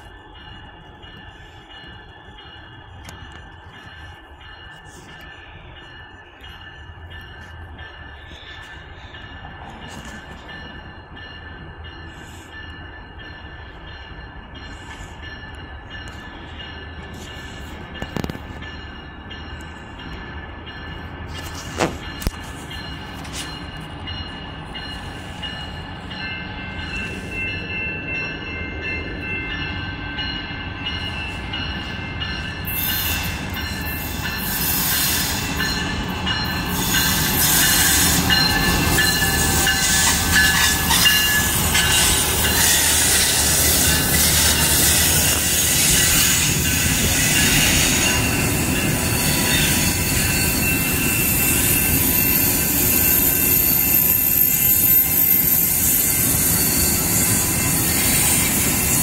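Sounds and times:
passenger train passing: 0.0s - 59.0s
wheel squeal: 49.1s - 58.9s.

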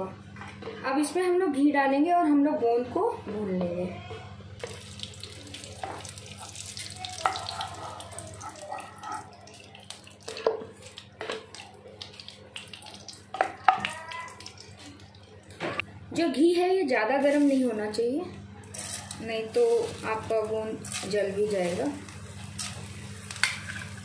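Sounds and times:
ghee sizzling in pan: 4.6s - 14.8s, 18.8s - 24.0s.

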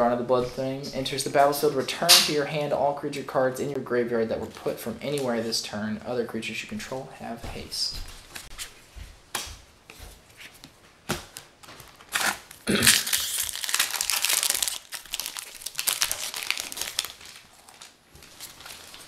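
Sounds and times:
foil wrapper crinkling and tearing: 11.7s - 19.0s.

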